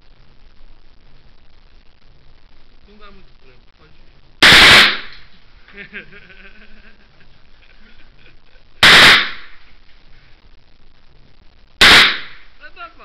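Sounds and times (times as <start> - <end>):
gunshots with ringing tail: 4.4 - 5.3, 8.8 - 9.6, 11.8 - 12.5.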